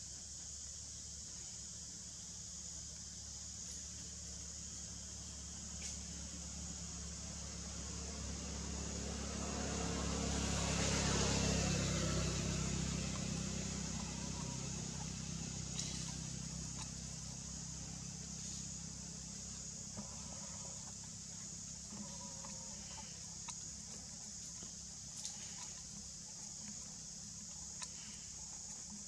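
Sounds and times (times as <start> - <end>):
high insect drone: 0.0 - 29.0
low engine hum: 0.0 - 29.0
passing vehicle: 6.4 - 18.6.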